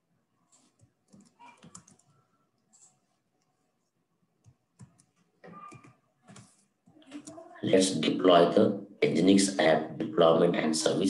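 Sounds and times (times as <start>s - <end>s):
computer keyboard clicking: 0.8s - 2.2s, 4.4s - 6.6s.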